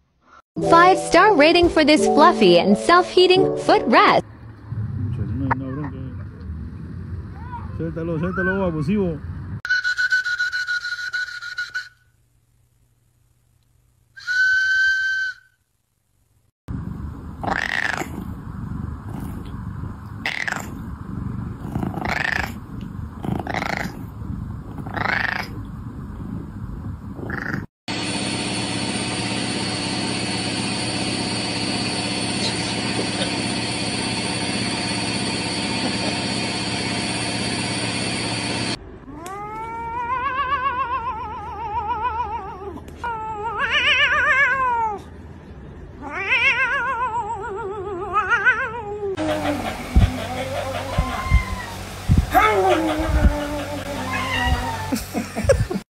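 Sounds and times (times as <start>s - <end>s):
cat yowling: 17.4s - 18.2s, 20.3s - 20.7s, 21.7s - 22.6s, 24.8s - 25.6s, 39.1s - 45.1s, 46.0s - 49.2s, 50.0s - 55.1s
cat purring: 19.0s - 25.6s
cat meowing: 46.0s - 49.1s, 50.8s - 55.0s.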